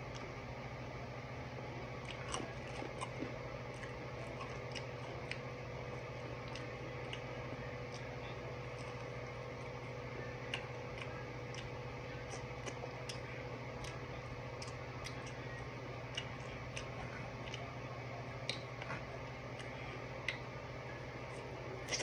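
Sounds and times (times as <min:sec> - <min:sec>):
low room hum: 0:00.0 - 0:22.0
chewing clicks and lip smacks: 0:02.0 - 0:05.6, 0:06.2 - 0:09.8, 0:10.4 - 0:17.7, 0:18.4 - 0:20.5, 0:21.3 - 0:22.0.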